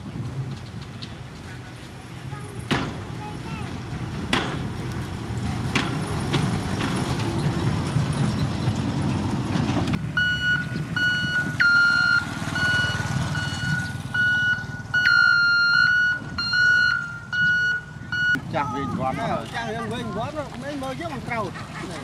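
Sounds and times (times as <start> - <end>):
truck engine running: 0.0 - 22.0
reversing alarm beeps: 10.2 - 18.4.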